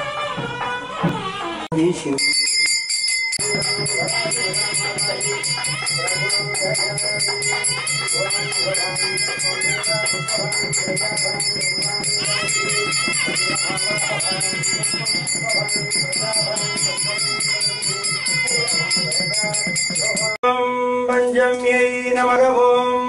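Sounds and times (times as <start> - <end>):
bells jingling: 2.2 - 20.4.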